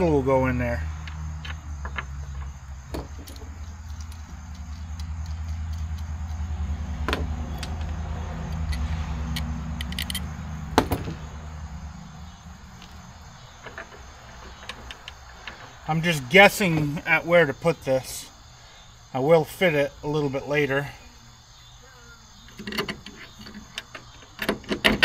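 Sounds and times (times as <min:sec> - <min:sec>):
vehicle engine hum: 0:00.0 - 0:18.0.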